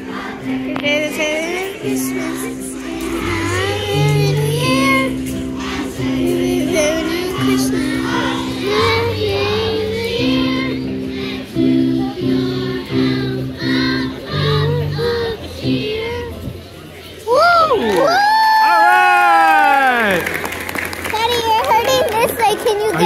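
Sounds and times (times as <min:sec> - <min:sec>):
held accompaniment chords: 0:00.0 - 0:17.2
children's choir singing: 0:00.0 - 0:17.3.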